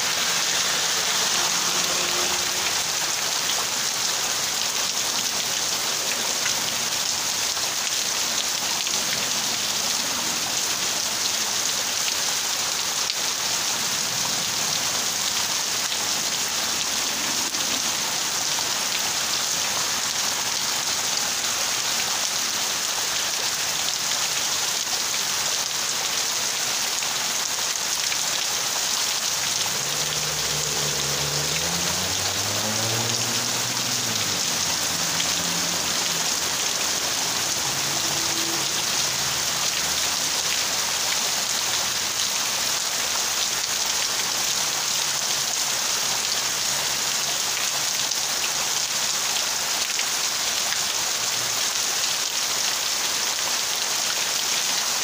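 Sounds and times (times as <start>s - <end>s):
heavy rain on leaves and pavement: 0.0s - 55.0s.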